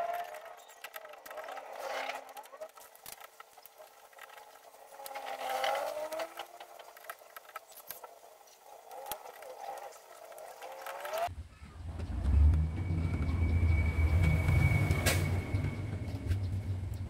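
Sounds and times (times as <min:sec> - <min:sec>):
electrical wires clicking and rustling: 0:00.0 - 0:11.3
wavering background noise: 0:00.0 - 0:17.0.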